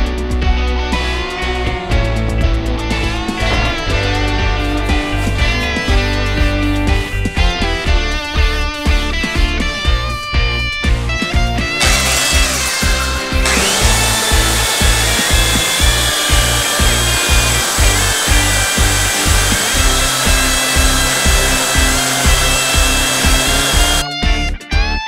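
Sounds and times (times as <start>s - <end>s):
belt sander grinding metal: 11.7s - 24.0s.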